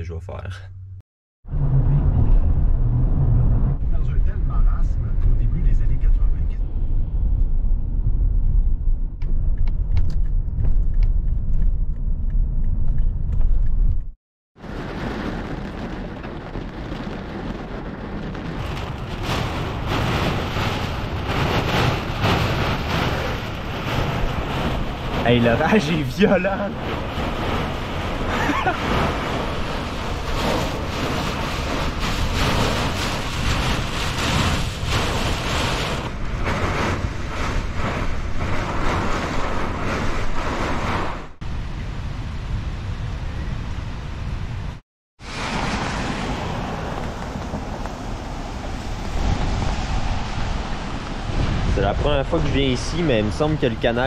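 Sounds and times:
wind gusts: 1.5 - 54.0
heavy rain pelting a van: 14.6 - 41.1, 45.2 - 54.0.

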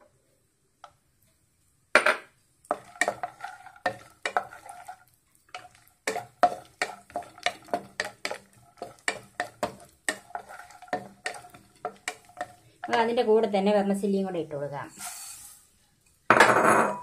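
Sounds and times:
nuts frying in ghee: 0.0 - 16.3
wooden spatula knocking on pan: 2.0 - 4.7, 5.6 - 13.2.

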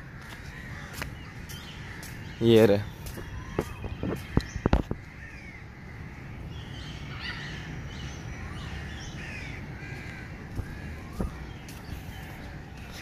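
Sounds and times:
birds chattering: 0.0 - 13.0.

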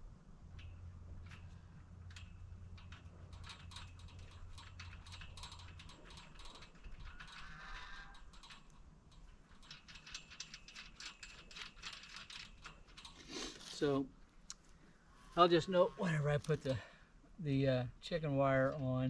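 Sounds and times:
low hum: 0.0 - 13.0
metal hardware clicking and ratcheting: 0.5 - 14.0.

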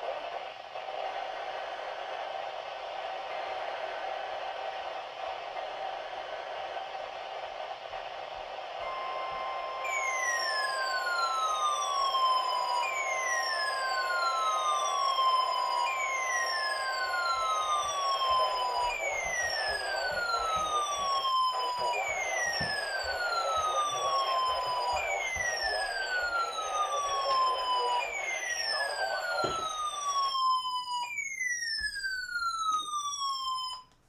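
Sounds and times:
falling siren-like sweep: 8.8 - 33.9.

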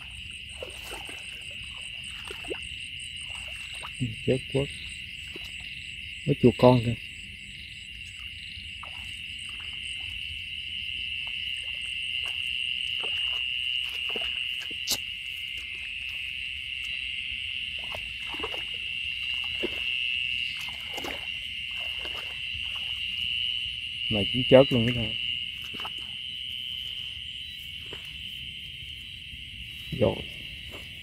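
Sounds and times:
crickets and night insects chirping: 0.0 - 31.0
footsteps rustling through grass: 25.5 - 31.0.

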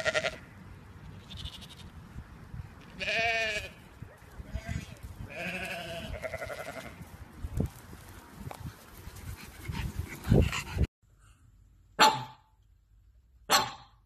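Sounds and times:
sheep bleating: 0.0 - 0.4, 1.2 - 1.9, 3.0 - 3.8, 4.4 - 7.0.

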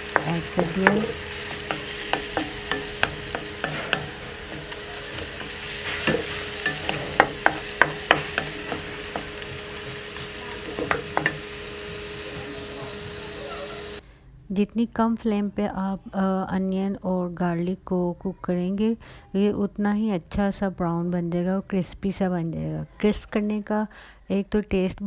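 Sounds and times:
wooden spatula scraping pan: 0.0 - 11.9
onions sizzling in oil: 0.0 - 14.0.

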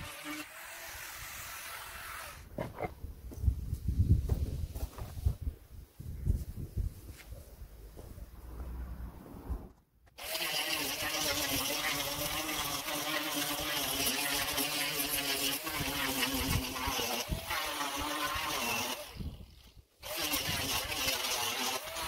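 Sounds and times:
electric sander buzzing: 0.0 - 2.8, 10.2 - 22.0.

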